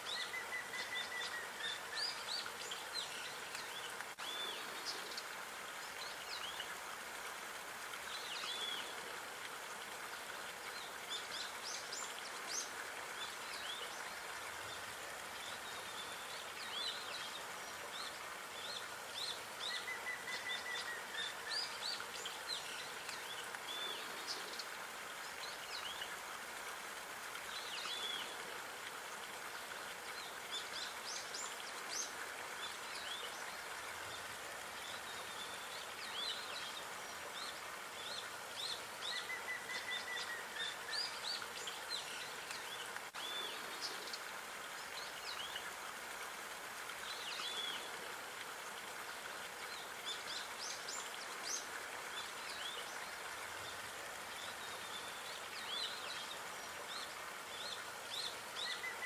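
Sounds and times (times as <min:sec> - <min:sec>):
outdoor background hiss: 0:00.0 - 0:59.0.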